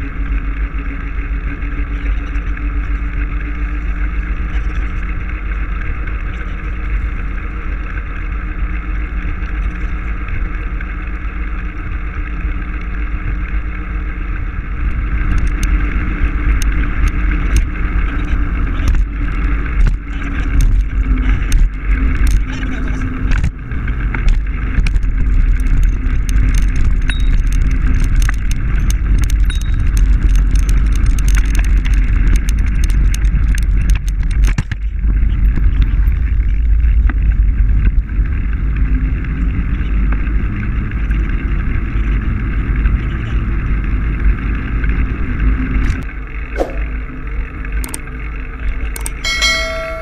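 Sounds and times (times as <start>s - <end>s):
bicycle rolling rumble: 0.0s - 50.0s.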